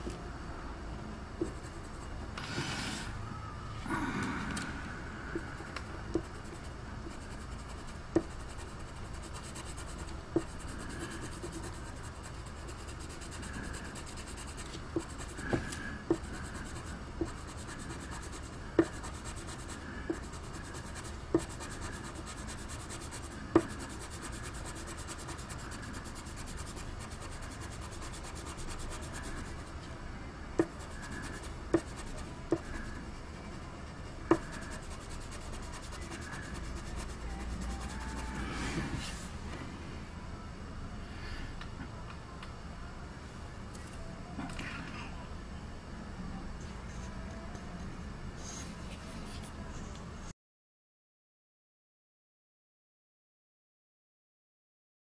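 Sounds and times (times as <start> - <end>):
pencil scratching on paper: 1.4 - 3.1, 6.2 - 29.8, 30.6 - 39.2.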